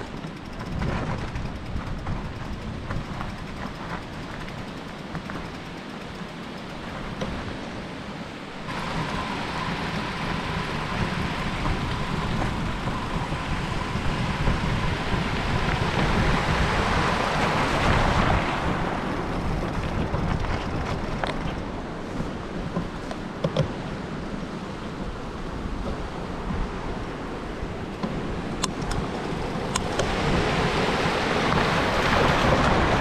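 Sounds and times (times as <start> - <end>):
thin steady whine: 0.0 - 16.3
wind rushing over microphone: 0.0 - 33.0.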